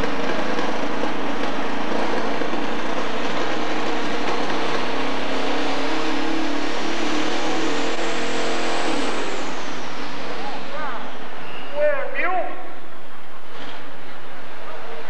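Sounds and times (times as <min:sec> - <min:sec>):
diesel engine revving hard: 0:00.0 - 0:11.7
high turbo whine: 0:00.0 - 0:15.0.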